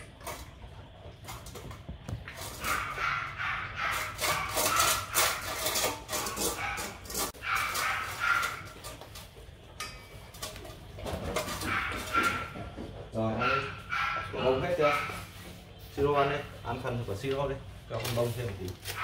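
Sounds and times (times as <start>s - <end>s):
dogs crunching dry kibble: 0.0s - 12.7s, 17.3s - 19.0s
clinks of steel bowls: 9.8s - 10.7s.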